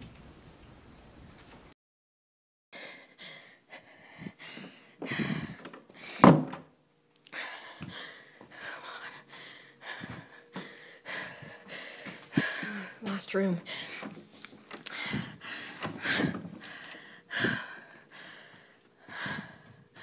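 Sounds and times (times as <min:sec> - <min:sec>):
quick heavy breathing: 0:02.8 - 0:06.3, 0:07.3 - 0:13.0, 0:13.6 - 0:20.0
door thunk: 0:06.2 - 0:06.7.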